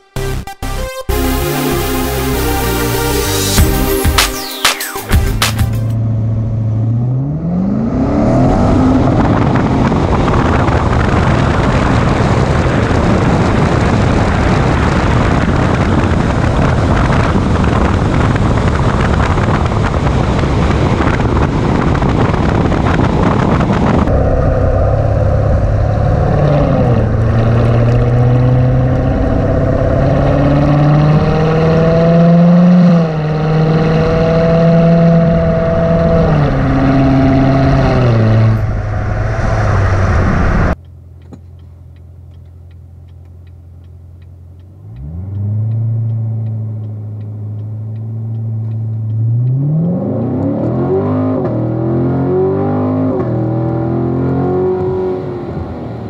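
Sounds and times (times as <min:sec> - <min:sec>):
car engine accelerating: 0:00.1 - 0:56.0
car exhaust note: 0:06.0 - 0:56.0
wind rushing: 0:07.3 - 0:40.8.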